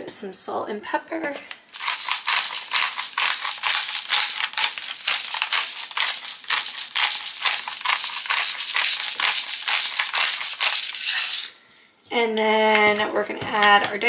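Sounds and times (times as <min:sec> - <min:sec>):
pepper grinder crunching clicks: 0:01.8 - 0:11.5.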